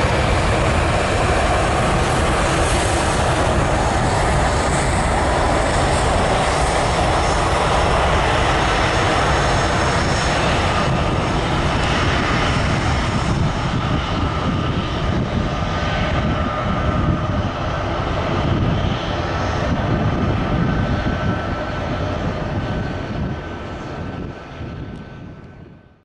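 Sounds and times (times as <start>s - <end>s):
jet engines rushing: 0.0s - 25.9s.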